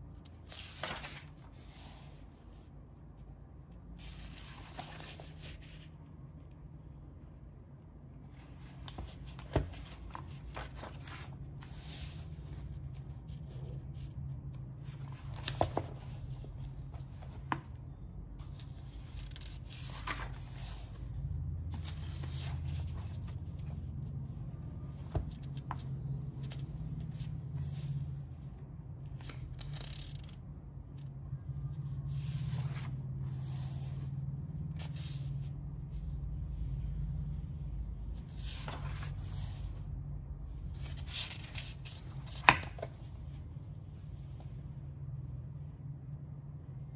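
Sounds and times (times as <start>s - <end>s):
steady low hum: 0.0s - 46.9s
paper pages rustling: 0.3s - 2.4s, 4.0s - 6.0s, 8.3s - 21.0s, 21.7s - 23.8s, 24.4s - 27.9s, 32.1s - 34.1s, 38.2s - 39.8s, 40.8s - 43.3s.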